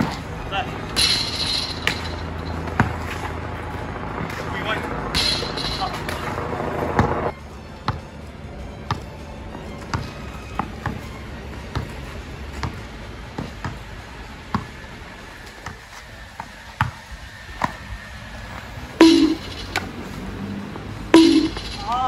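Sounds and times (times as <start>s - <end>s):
ball hitting hoop with clang: 1.0s - 2.9s, 5.1s - 6.2s, 19.0s - 19.9s, 21.1s - 22.0s
basketball bouncing on hard court: 12.6s - 12.8s, 13.4s - 13.8s, 16.8s - 17.0s.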